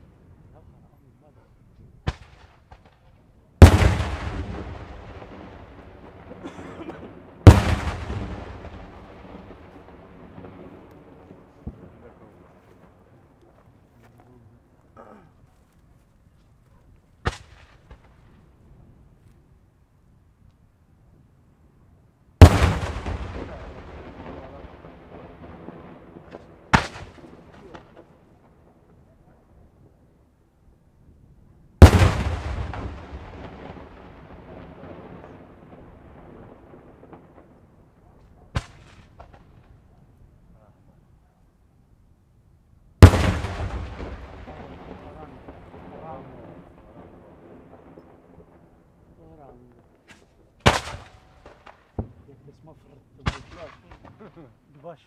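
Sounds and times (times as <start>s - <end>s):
small firework pops: 2.0s - 9.8s, 10.4s - 14.2s, 16.6s - 18.4s, 25.7s - 29.0s, 37.0s - 40.1s, 49.6s - 52.3s, 53.2s - 54.4s
firework shells bursting: 2.0s - 12.1s, 43.0s - 47.0s.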